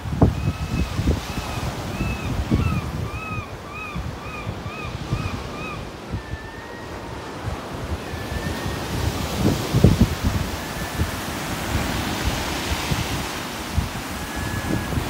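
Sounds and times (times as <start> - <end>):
wind buffeting microphone: 0.0 - 15.0
bird calling: 0.2 - 12.2.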